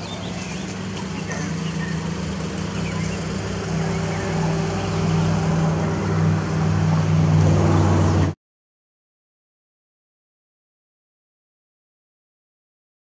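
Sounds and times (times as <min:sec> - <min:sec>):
truck engine idling: 0:00.0 - 0:08.4.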